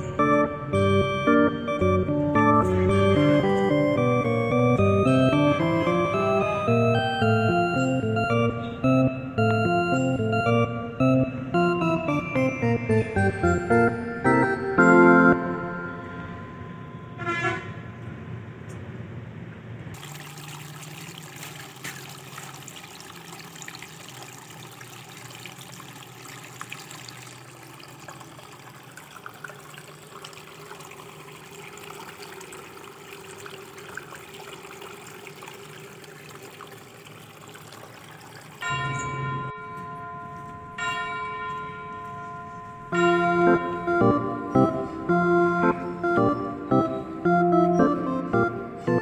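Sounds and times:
water trickling in fountain: 0.0s - 14.0s, 19.9s - 45.0s
organ-like musical tones: 0.0s - 17.4s, 38.6s - 49.0s.

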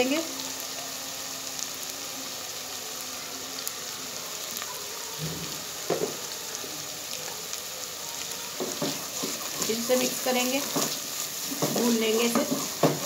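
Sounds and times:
spices sizzling in oil: 0.0s - 13.0s.

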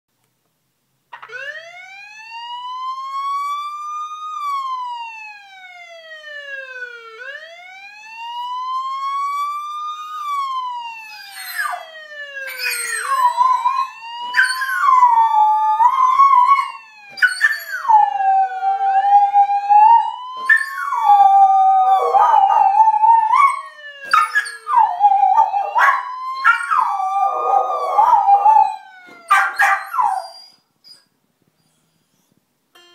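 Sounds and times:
police siren wailing: 1.2s - 30.6s
dog howling: 20.5s - 30.5s.

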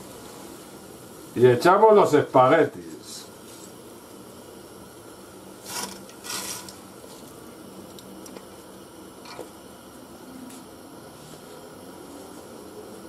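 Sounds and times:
boiling water hissing: 0.0s - 13.0s
spaghetti swishing against pot: 5.6s - 7.4s.

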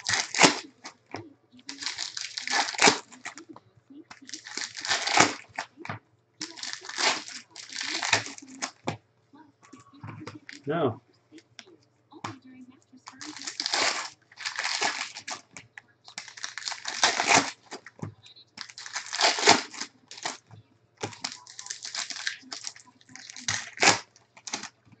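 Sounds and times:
foil wrapper crinkling and tearing: 0.0s - 1.0s, 1.6s - 3.4s, 4.1s - 5.7s, 6.4s - 8.8s, 13.1s - 17.9s, 18.6s - 20.4s, 21.0s - 24.8s.

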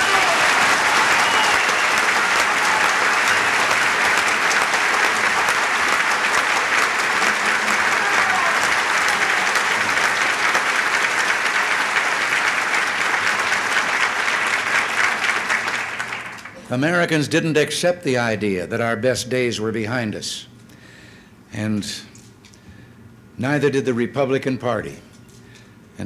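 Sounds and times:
audience applause: 0.0s - 16.6s.

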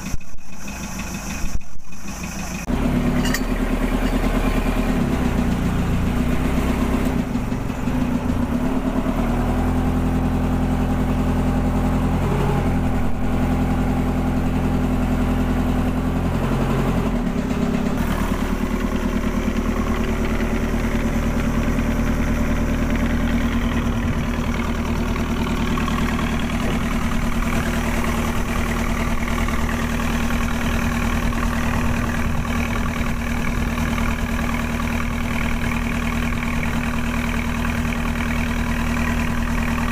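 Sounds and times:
boat engine running: 0.0s - 39.9s.

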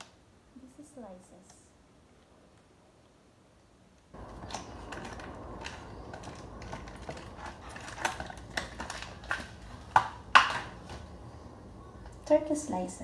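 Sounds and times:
plastic packaging crinkling: 4.2s - 11.1s.

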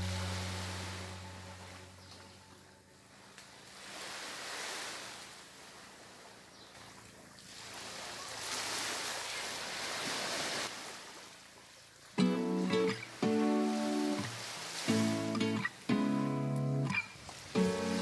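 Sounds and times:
surf washing on shore: 0.0s - 2.0s, 3.5s - 18.0s
music with plucked guitar: 0.0s - 2.2s, 12.2s - 18.0s.

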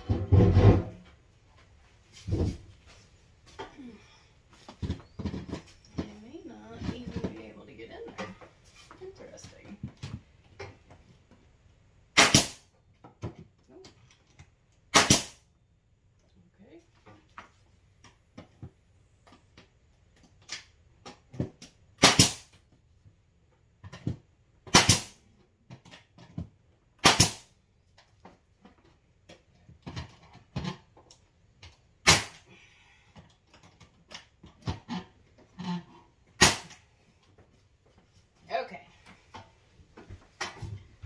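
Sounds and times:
nail gun firing: 12.2s - 12.6s, 14.9s - 15.4s, 22.0s - 22.5s, 24.7s - 25.2s, 27.0s - 27.5s, 32.0s - 32.4s, 36.4s - 36.8s.

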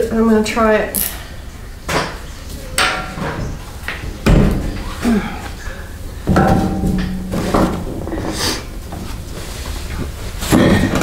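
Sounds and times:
tools knocking and clunking: 6.2s - 8.3s.

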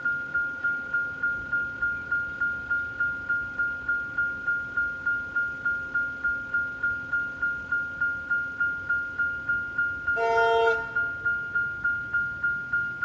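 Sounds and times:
level crossing bell ringing: 0.0s - 13.0s
train horn blast: 10.2s - 11.2s.

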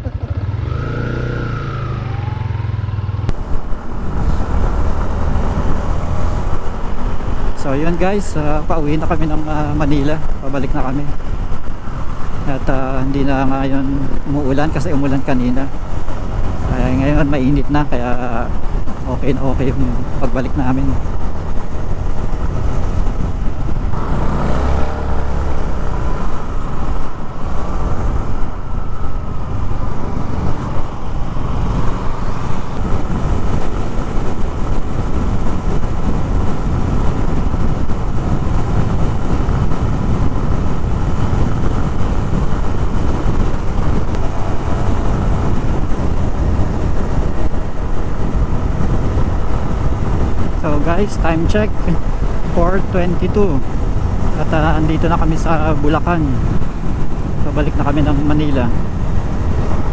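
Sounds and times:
motorcycle engine: 0.0s - 7.6s, 19.8s - 50.6s
road noise: 0.0s - 59.9s
wind rush over microphone: 0.0s - 59.9s.

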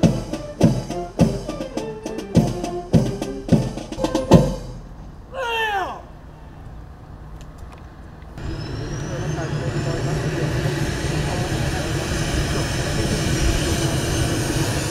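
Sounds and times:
heavy drum strikes: 0.0s - 5.0s
ceremonial band music: 0.0s - 5.1s.

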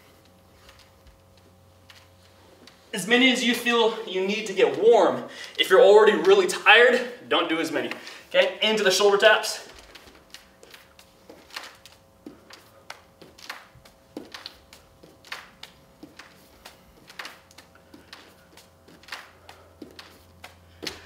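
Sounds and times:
hands patting on wooden floor: 9.7s - 21.0s.

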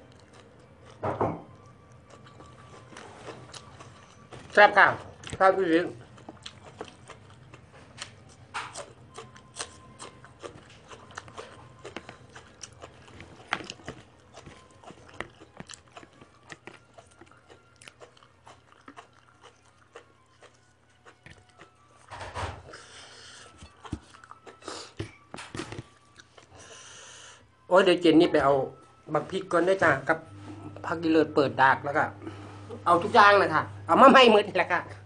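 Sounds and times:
person crunching raw vegetables: 5.1s - 22.1s.

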